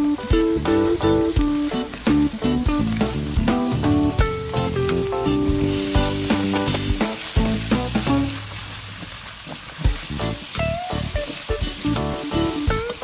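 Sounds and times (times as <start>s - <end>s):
background music with plucked notes: 0.0s - 8.4s, 9.9s - 13.0s
bacon and onions sizzling in a pan: 0.0s - 13.0s.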